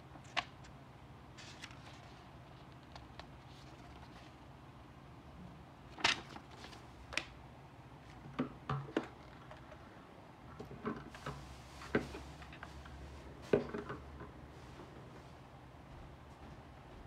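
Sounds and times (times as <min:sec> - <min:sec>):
paper rustling: 0:01.4 - 0:04.4, 0:06.0 - 0:06.9.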